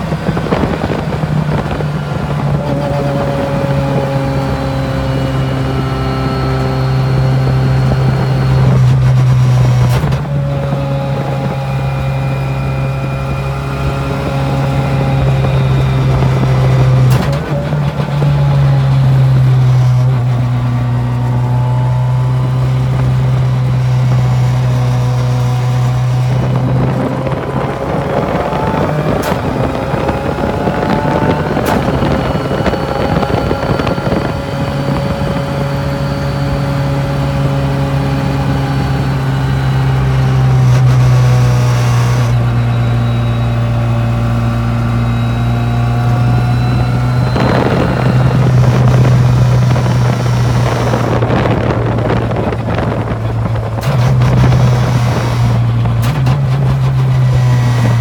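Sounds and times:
rush of noise: 0.0 - 40.1
car engine running: 0.0 - 58.0.

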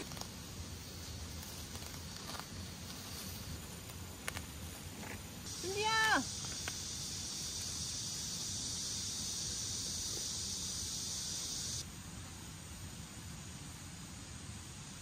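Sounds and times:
high-pitched insect buzzing: 5.5 - 11.8.

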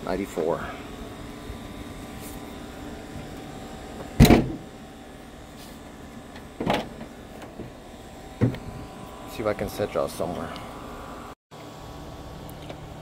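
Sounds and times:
car hood thunks: 4.2 - 4.7.

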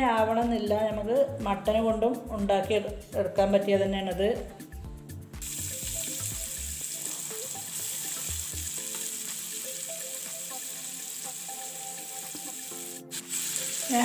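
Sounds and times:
soft background music: 0.0 - 14.0
onions sizzling in oil: 5.4 - 14.0.

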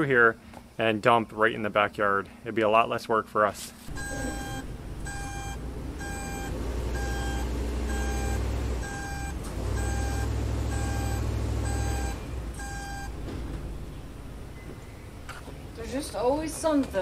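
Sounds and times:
back-up alarm beeping: 3.9 - 13.3
vehicle engine running: 3.9 - 14.5.

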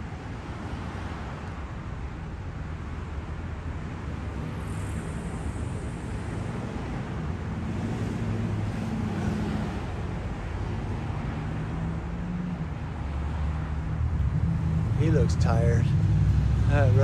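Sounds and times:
low rumble of street traffic: 0.0 - 17.0
car driving past: 13.2 - 17.0.

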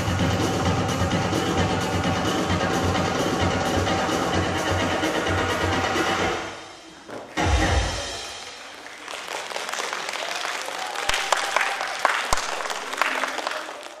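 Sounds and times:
audience applauding: 8.1 - 14.0.

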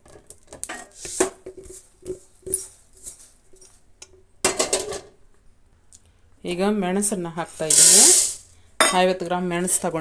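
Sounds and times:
utensils scraping a steel plate: 7.7 - 8.4.

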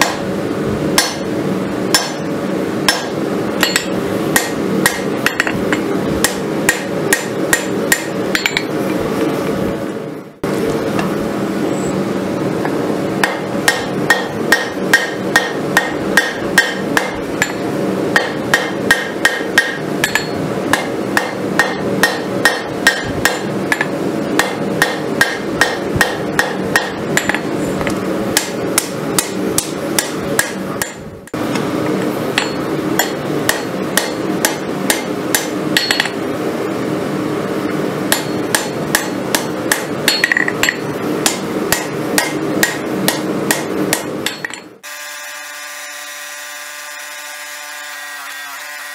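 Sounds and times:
hammer striking metal on anvil: 0.0 - 0.3, 1.0 - 1.3, 1.9 - 2.3, 2.9 - 8.8, 13.2 - 31.4, 32.3 - 36.2, 38.1 - 44.7
steady hum: 0.0 - 47.3.

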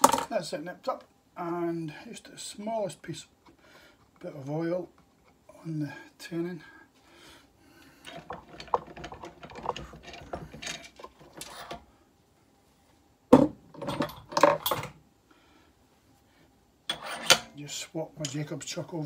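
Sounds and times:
metal tools clinking: 8.0 - 11.7.

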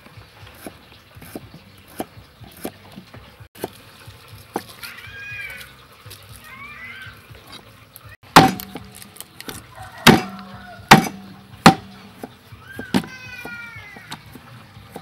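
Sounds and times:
cleaver chopping on wooden block: 8.4 - 13.1.

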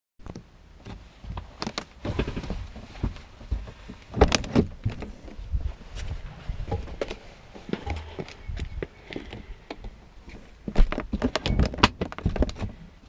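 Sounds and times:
wind rumble on microphone: 4.2 - 9.7.

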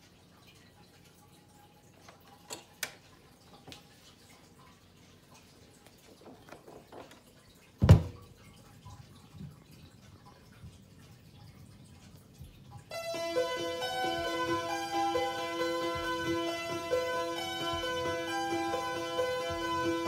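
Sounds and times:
faint record groove ticking: 0.0 - 20.0.

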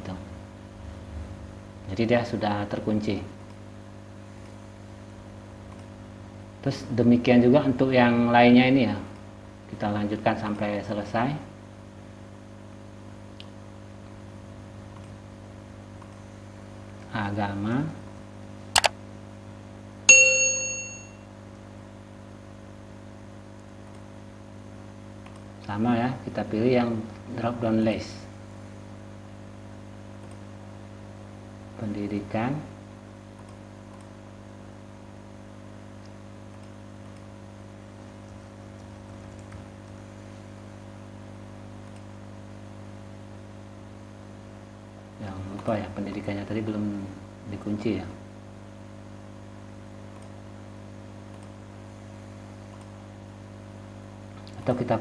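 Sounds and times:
low electrical hum: 0.0 - 55.0
faint computer clicks: 5.7 - 6.0, 16.0 - 16.3, 18.8 - 19.0, 23.5 - 24.1, 25.2 - 25.7, 30.2 - 30.5, 33.4 - 34.2, 36.0 - 37.4, 41.8 - 42.1, 50.1 - 50.4, 51.3 - 51.6, 52.7 - 53.0
mouse double-click: 18.8 - 19.0
system alert ding: 20.1 - 21.2.

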